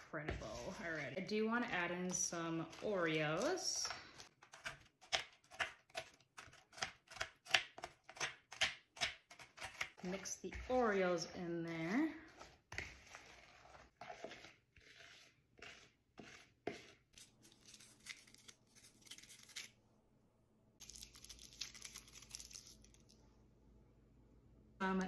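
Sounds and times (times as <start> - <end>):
spoon stirring in a bowl: 9.3 - 17.3
plastic wrappers crinkling and tearing: 20.8 - 23.2.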